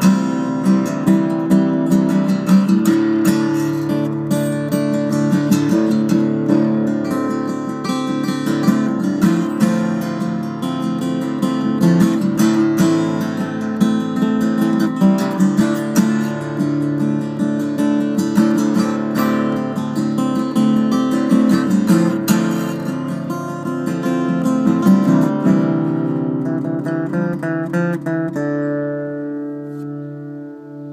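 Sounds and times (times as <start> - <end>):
fingerpicked acoustic guitar: 0.0 - 30.9.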